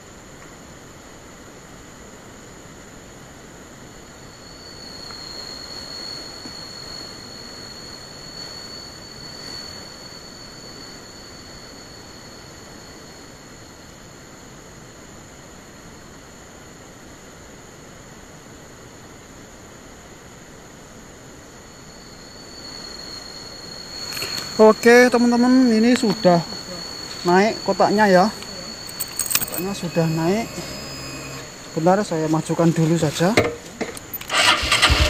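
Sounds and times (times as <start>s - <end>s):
insect drone: 0.0s - 35.0s
outdoor hiss: 0.0s - 35.0s
thin high-pitched whine: 3.6s - 16.1s, 21.3s - 35.0s.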